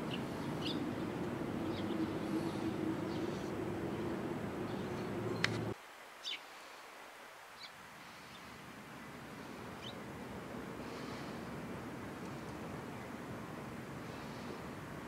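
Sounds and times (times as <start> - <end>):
bird chirps: 0.0 - 0.9
steady low hum: 0.0 - 5.8.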